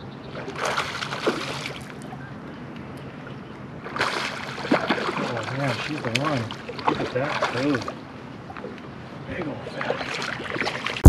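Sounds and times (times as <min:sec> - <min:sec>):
fish splashing at water surface: 0:00.4 - 0:02.0, 0:03.8 - 0:08.0.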